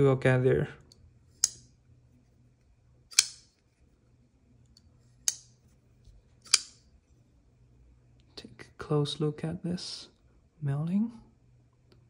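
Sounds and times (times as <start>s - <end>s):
folding knife clicking open and shut: 1.4s - 1.7s, 3.1s - 3.5s, 6.4s - 6.8s.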